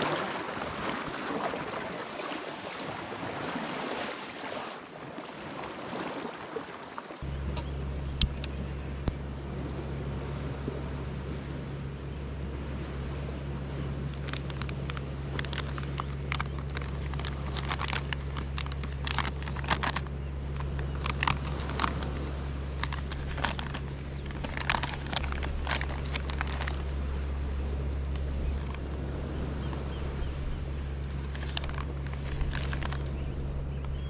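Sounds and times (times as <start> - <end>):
steady low hum: 7.2 - 34.0
plastic pouch crinkling: 14.1 - 27.0, 28.5 - 28.8, 31.0 - 34.0.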